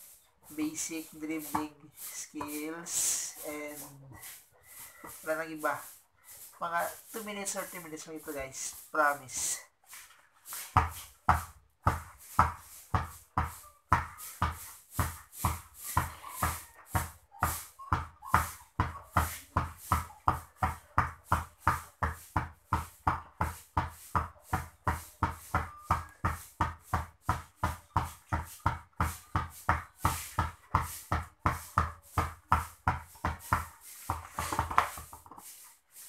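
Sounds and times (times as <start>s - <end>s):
basketball dribbling: 0.6s - 3.3s, 10.6s - 35.4s.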